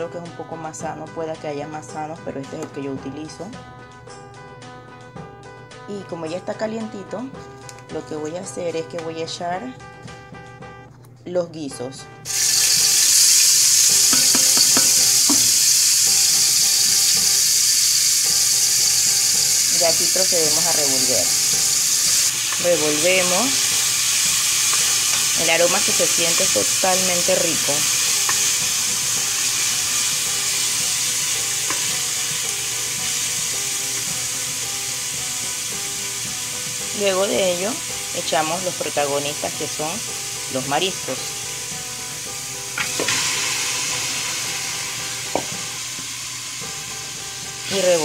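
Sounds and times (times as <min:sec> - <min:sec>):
vegetables sizzling in oil: 0:12.2 - 0:48.0
spoon stirring: 0:12.3 - 0:17.4
spoon knocking against pan: 0:14.0 - 0:16.3, 0:45.3 - 0:46.1.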